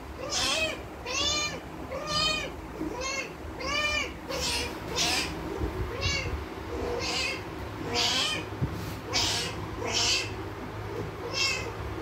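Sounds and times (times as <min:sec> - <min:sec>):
cat meowing: 0:00.2 - 0:05.3, 0:05.9 - 0:08.4, 0:11.2 - 0:11.7.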